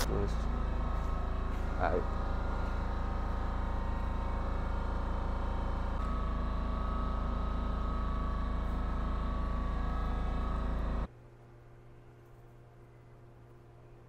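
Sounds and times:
machine humming: 0:00.0 - 0:11.1.

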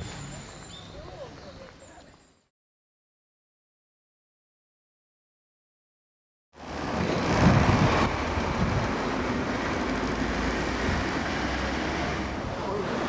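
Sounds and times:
road traffic passing: 0:00.0 - 0:02.1, 0:06.6 - 0:13.0.

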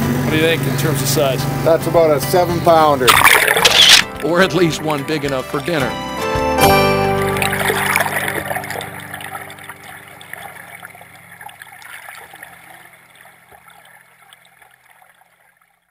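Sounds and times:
water splashing and trickling: 0:02.7 - 0:05.9, 0:07.1 - 0:15.9.

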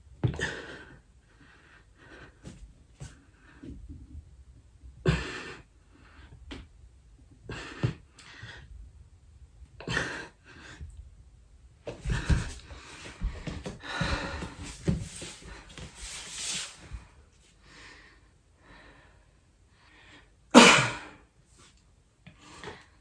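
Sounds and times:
man breathing hard: 0:12.0 - 0:16.2.

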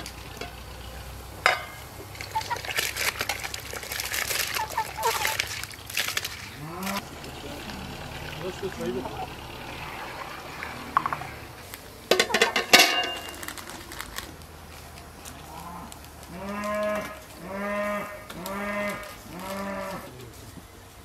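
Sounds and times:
farm animal calling: 0:00.0 - 0:14.0, 0:15.0 - 0:21.0.

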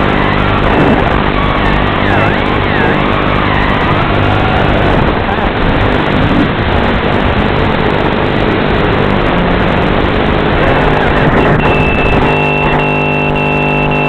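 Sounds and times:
drone rushing noise: 0:00.0 - 0:13.6
low hum: 0:00.0 - 0:14.0
high beeping tone: 0:01.3 - 0:03.9, 0:10.8 - 0:14.0.

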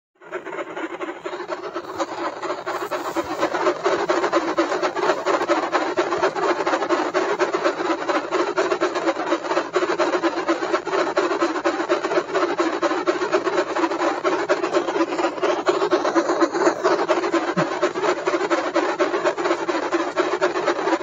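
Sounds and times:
steady low hum: 0:00.3 - 0:09.3, 0:11.7 - 0:18.1.

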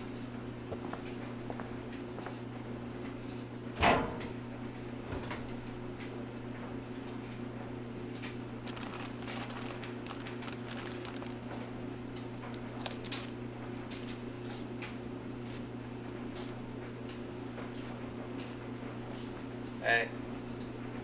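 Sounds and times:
low hum of machines: 0:00.0 - 0:21.0
snacks crunching: 0:08.6 - 0:11.5, 0:12.5 - 0:14.2
plastic snack bag crinkling: 0:08.6 - 0:11.6, 0:12.5 - 0:13.4.

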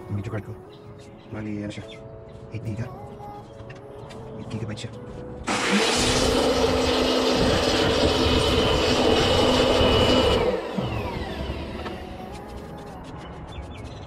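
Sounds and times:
electric blower humming and whining: 0:05.5 - 0:12.9.

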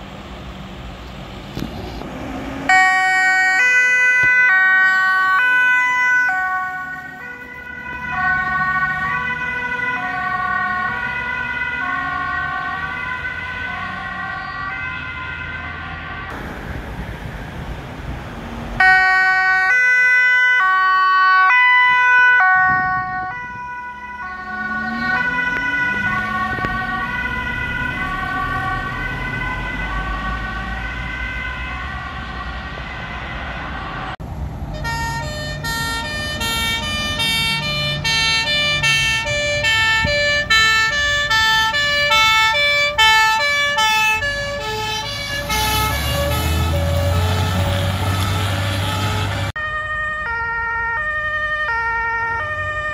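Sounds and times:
ambulance siren: 0:02.2 - 0:17.6, 0:18.5 - 0:52.9
two-tone siren switching pitch: 0:18.8 - 0:34.0
heavy engine rumbling: 0:22.6 - 0:49.6.

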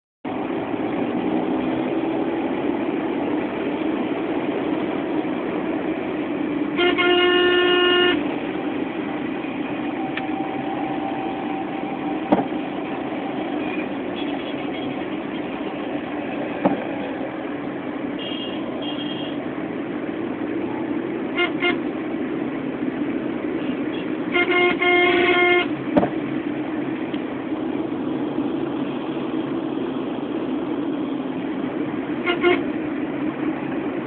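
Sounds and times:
road and engine noise: 0:00.2 - 0:34.0
faint horn toots: 0:06.8 - 0:08.2
vehicle horn blowing: 0:06.8 - 0:08.2, 0:18.2 - 0:19.4, 0:21.4 - 0:21.8, 0:23.6 - 0:25.7, 0:32.2 - 0:32.6
sharp knocks: 0:12.3 - 0:12.6, 0:16.6 - 0:16.9, 0:26.0 - 0:26.2.

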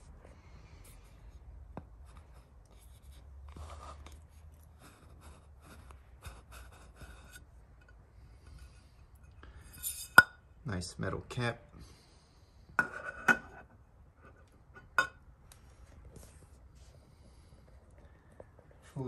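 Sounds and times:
metal lens cap scraping: 0:09.7 - 0:10.3.

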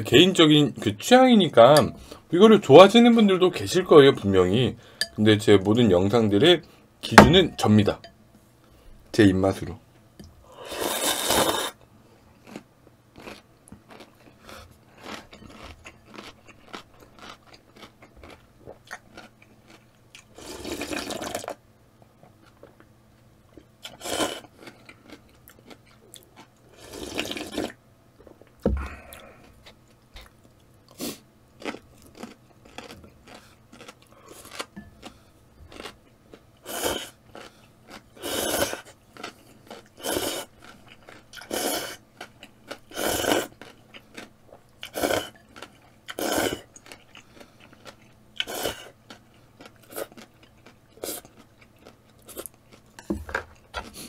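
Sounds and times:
slurping noodles: 0:10.5 - 0:11.8, 0:20.4 - 0:21.5, 0:23.9 - 0:24.5, 0:26.8 - 0:27.8, 0:36.6 - 0:37.2, 0:38.2 - 0:38.9, 0:40.0 - 0:40.5, 0:41.4 - 0:42.0, 0:42.9 - 0:43.5, 0:44.9 - 0:45.4, 0:46.2 - 0:46.7, 0:48.4 - 0:48.9
quiet chewing: 0:11.5 - 0:54.0.

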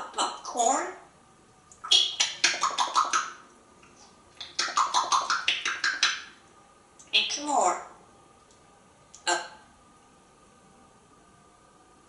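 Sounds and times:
parrot rapid clicks and pops: 0:04.4 - 0:06.2.

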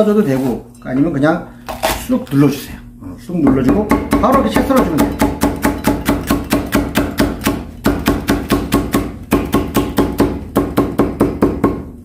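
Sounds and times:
knife chopping on wooden board: 0:03.5 - 0:11.9.

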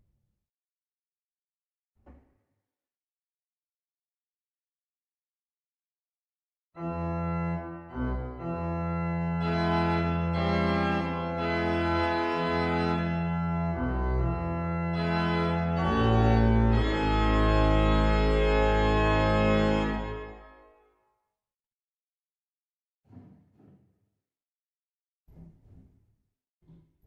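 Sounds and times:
deep organ pedal bass notes: 0:06.8 - 0:20.5
pipe organ sustained chords: 0:06.8 - 0:20.5.

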